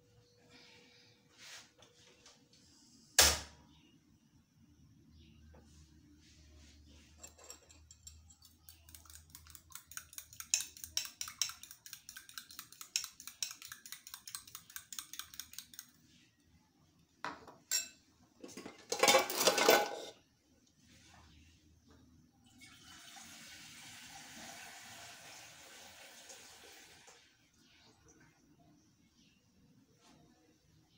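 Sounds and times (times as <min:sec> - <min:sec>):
fork beating eggs in bowl: 0:07.2 - 0:16.2.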